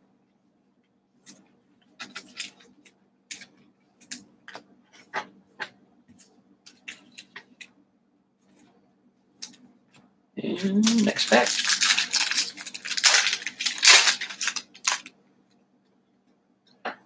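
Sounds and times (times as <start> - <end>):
cards and wrappers rustling: 2.0 - 3.5, 10.8 - 15.1.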